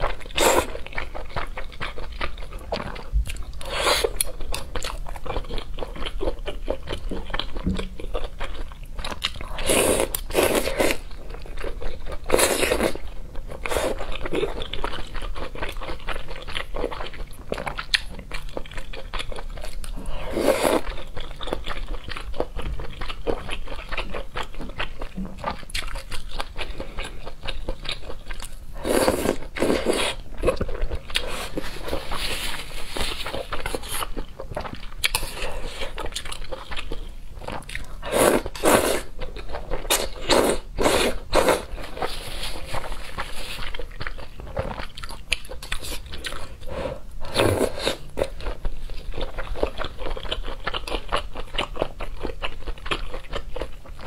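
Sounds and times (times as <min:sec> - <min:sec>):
chewing and biting food: 0:00.0 - 0:54.0
loud noodle slurps: 0:38.1 - 0:39.1.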